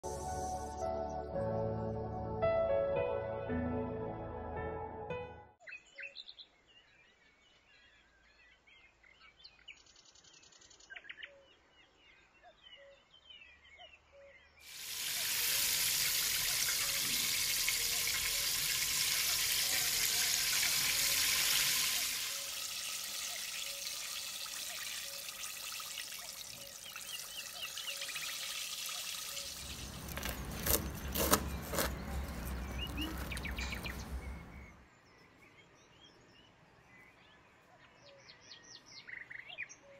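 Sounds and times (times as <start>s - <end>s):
birds chirping faintly: 5.6s - 39.9s
chicken deep-frying in oil: 14.6s - 34.4s.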